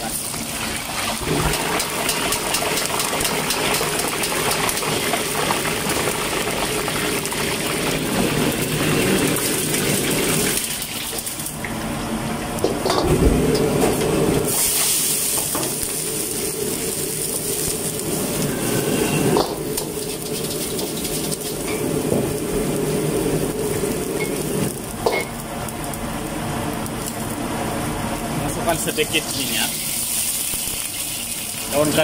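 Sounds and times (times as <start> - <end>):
gas wok burner rushing: 0.0 - 32.0
water sizzling in hot wok: 0.0 - 32.0.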